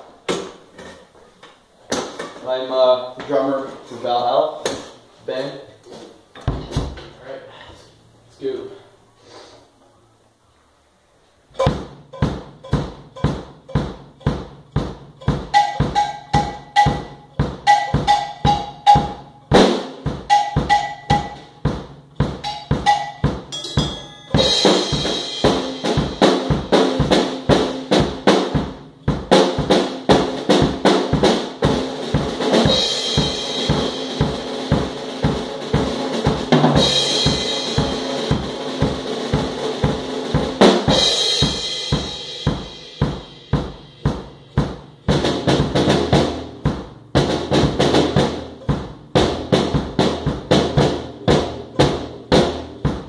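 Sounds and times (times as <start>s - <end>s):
cymbals washing: 11.6s - 28.2s, 29.2s - 45.1s.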